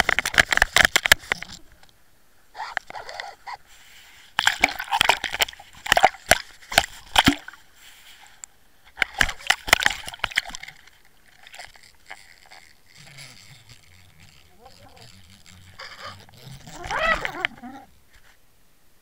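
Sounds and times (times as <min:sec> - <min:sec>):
water sloshing and churning: 0:09.0 - 0:17.9.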